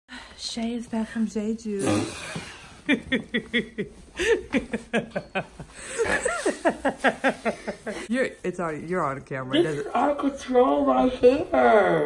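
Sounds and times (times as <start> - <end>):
person laughing: 2.9 - 8.1.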